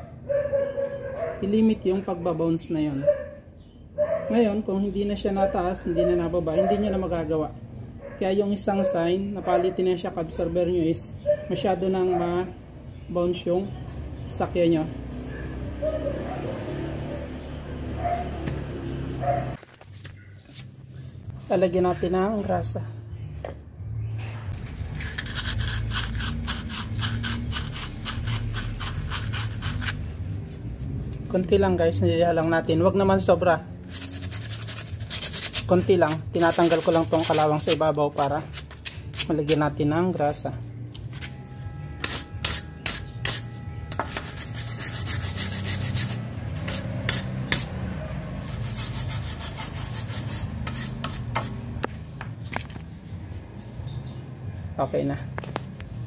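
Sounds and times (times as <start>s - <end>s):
gloved hand rubbing metal: 24.6s - 30.9s, 33.8s - 37.8s, 41.2s - 47.7s, 48.5s - 51.6s
wire brush scrubbing metal: 33.8s - 37.8s, 42.0s - 47.7s, 48.5s - 51.6s.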